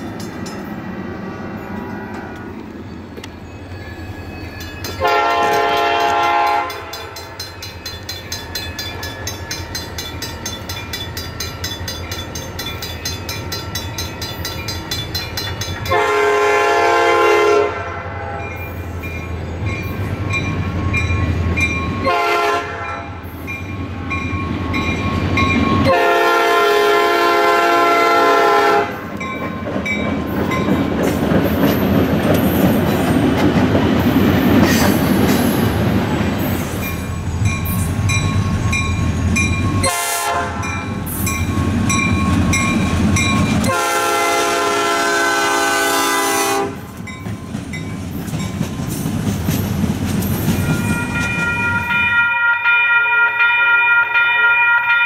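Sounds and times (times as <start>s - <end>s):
train rumble and wheel noise: 0.0s - 55.0s
crossing bell dinging: 1.5s - 17.3s, 18.0s - 33.1s, 36.4s - 44.8s, 46.4s - 55.0s
diesel locomotive horn: 5.0s - 7.2s, 15.9s - 18.8s, 22.0s - 23.3s, 25.8s - 29.1s, 39.8s - 40.9s, 43.6s - 47.0s.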